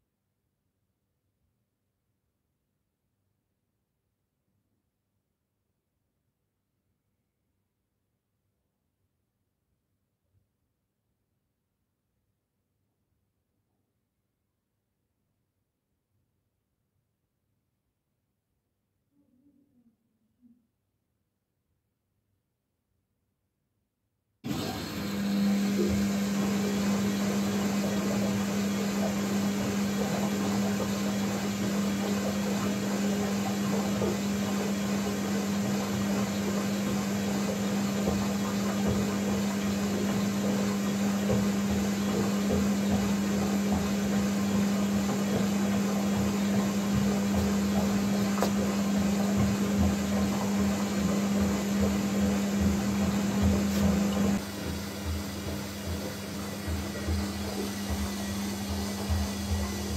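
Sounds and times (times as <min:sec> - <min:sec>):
washing machine humming: 0:24.5 - 0:59.9.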